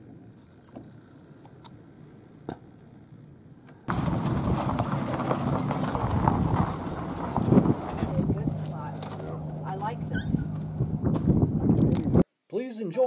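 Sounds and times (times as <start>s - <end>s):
tyres rolling on gravel: 3.9s - 11.8s
truck engine running: 3.9s - 12.2s.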